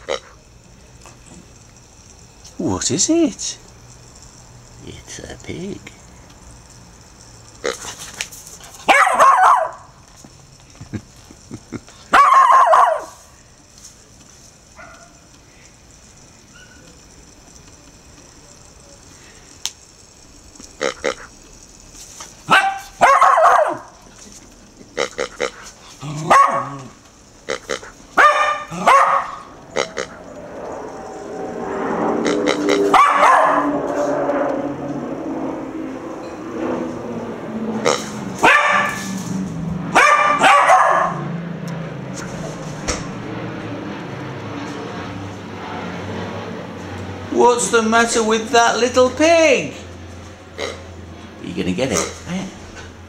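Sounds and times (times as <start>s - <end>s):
puppy barking: 8.8s - 9.9s, 12.1s - 13.2s, 14.8s - 15.2s, 22.5s - 24.0s, 26.2s - 27.0s, 27.8s - 29.5s, 32.9s - 33.7s, 38.4s - 39.1s, 39.9s - 41.3s.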